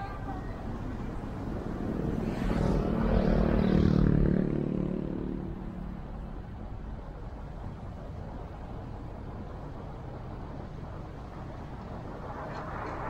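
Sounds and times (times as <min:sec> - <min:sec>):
steady road noise: 0:00.0 - 0:13.0
vehicle engine passing by: 0:01.4 - 0:06.2.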